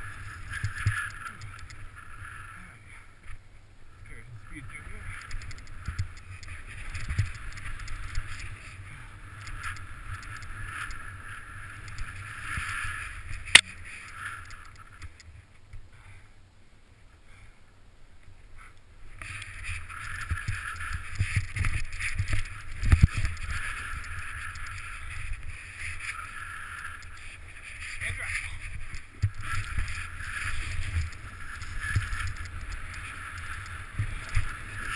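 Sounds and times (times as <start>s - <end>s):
low wind rumble: 16.3s - 34.9s.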